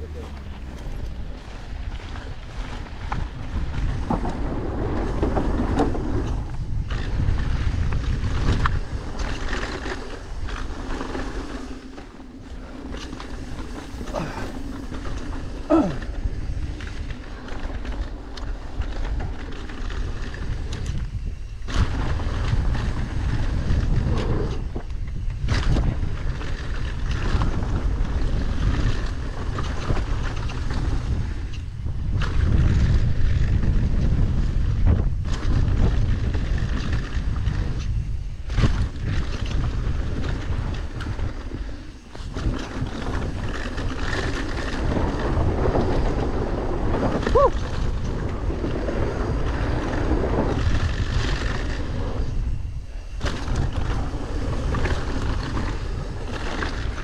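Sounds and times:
bike knocks and rattles: 0.0 - 52.5, 53.2 - 57.0
wind buffeting microphone: 0.0 - 57.0.

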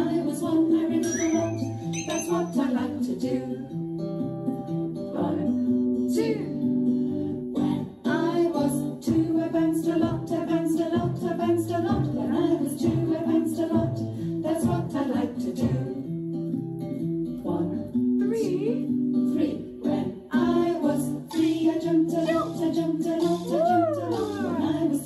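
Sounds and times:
person singing: 0.0 - 3.7, 19.4 - 25.0
plucked guitar: 0.0 - 25.0.

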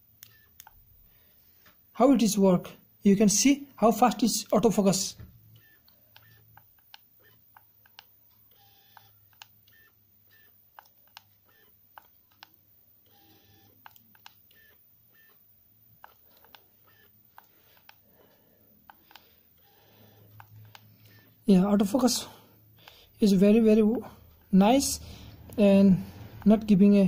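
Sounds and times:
small camera clicks: 5.6 - 15.4, 16.0 - 18.0.

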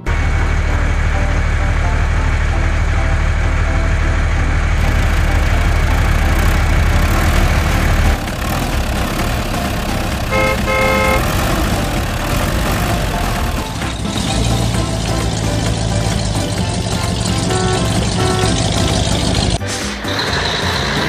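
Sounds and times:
heavy vehicle engine drone: 0.0 - 21.0
vehicle horn toots: 10.2 - 11.9, 17.2 - 19.6.

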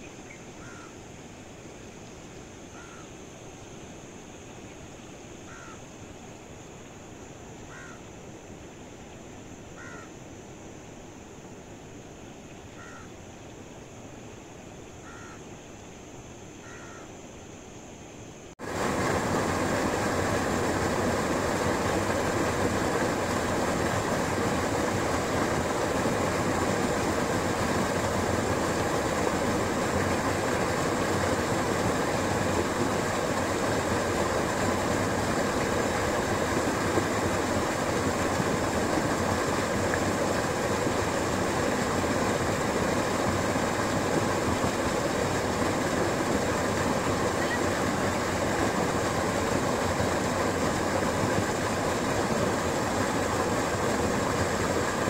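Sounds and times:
crow cawing: 0.6 - 0.9, 2.8 - 3.1, 5.5 - 5.8, 7.7 - 8.0, 9.8 - 10.1, 12.8 - 13.1, 15.0 - 15.4, 16.6 - 17.1
waterfall rushing: 18.6 - 55.0.

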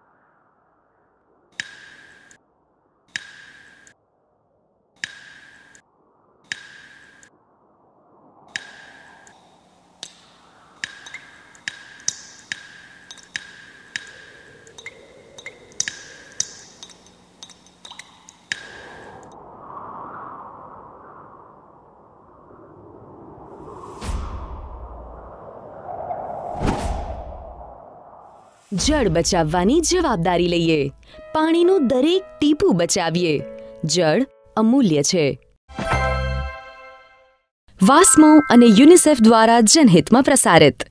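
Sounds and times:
water dripping from a tap: 10.8 - 18.7
soft whooshing: 18.8 - 28.8.

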